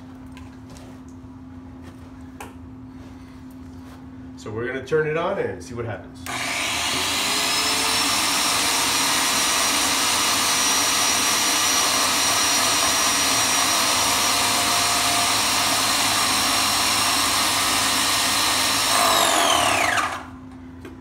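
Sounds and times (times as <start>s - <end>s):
paint sprayer motor whine: 6.2s - 20.4s.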